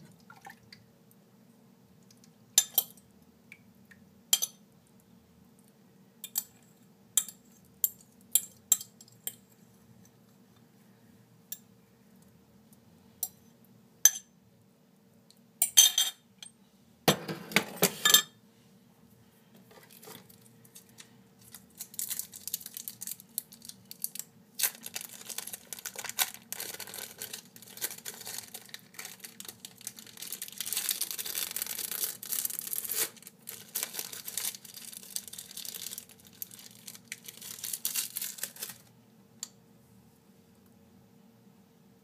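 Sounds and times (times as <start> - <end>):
plastic crinkling: 19.7 - 38.9.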